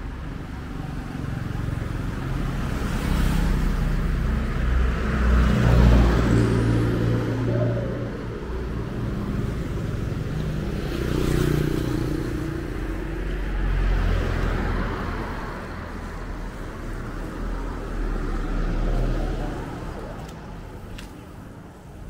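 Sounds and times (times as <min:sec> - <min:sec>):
vehicles passing: 0:00.0 - 0:22.0.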